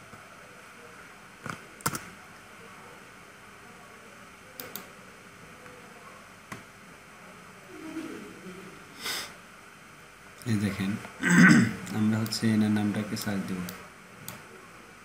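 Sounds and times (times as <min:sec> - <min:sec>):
faint steady hiss: 0:00.0 - 0:15.0
keyboard and mouse clicks: 0:01.4 - 0:02.1, 0:04.6 - 0:04.9.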